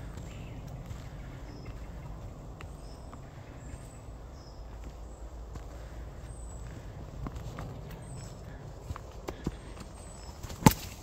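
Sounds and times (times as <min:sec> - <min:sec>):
faint bird chirps: 0:00.0 - 0:07.0
steady low rumble: 0:00.0 - 0:10.5.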